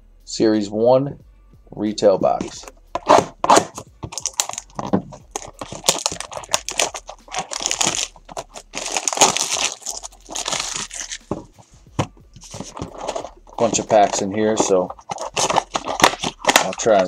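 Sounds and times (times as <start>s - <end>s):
plastic wrap crinkling: 3.1s - 11.6s, 12.4s - 17.0s.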